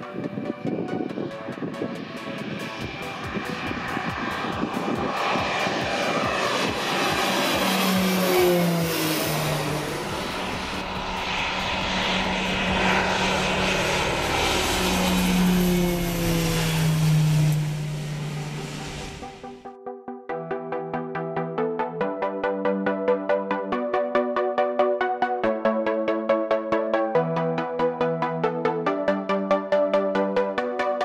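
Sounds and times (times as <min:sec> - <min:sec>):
model plane propellers droning: 0:00.0 - 0:19.6.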